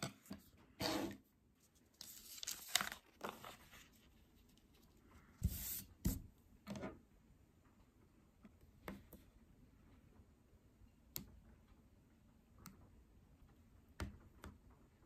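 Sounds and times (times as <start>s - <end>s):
paper rustling and sliding: 1.8s - 6.2s.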